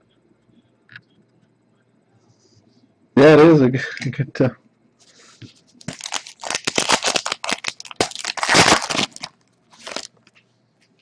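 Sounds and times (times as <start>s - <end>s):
wrapper tearing and crinkling: 5.8s - 10.3s.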